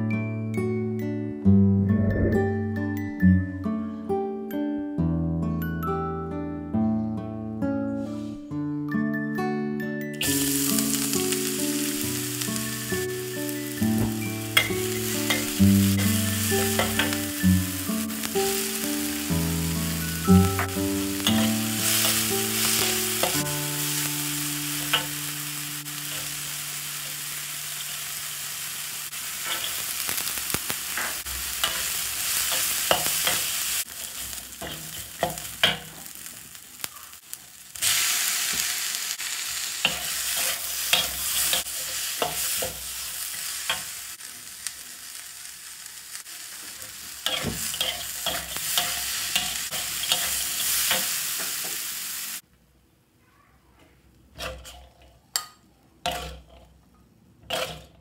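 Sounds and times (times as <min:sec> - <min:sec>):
food sizzling in a wok: 0:10.2 - 0:52.4, 0:56.1 - 0:56.6, 0:57.5 - 0:58.0
metal spatula scraping pan: 0:20.5 - 0:23.5, 0:56.1 - 0:56.7, 0:57.5 - 0:58.0.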